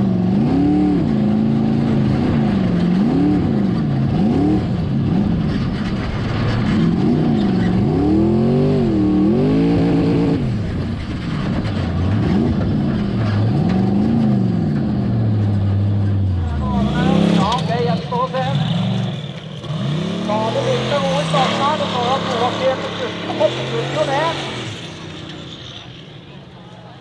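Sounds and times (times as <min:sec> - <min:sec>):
buggy engine revving: 0:00.0 - 0:27.0.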